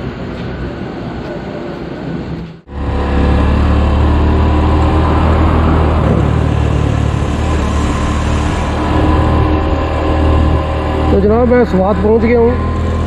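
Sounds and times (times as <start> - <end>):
roadside traffic: 0.0 - 13.0
motorcycle engine running: 2.7 - 13.0.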